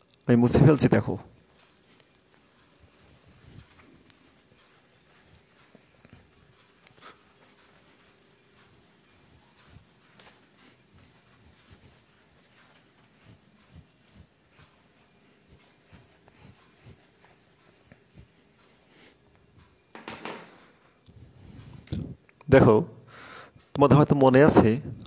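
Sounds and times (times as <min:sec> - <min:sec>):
eraser wiping whiteboard: 0:01.5 - 0:19.2.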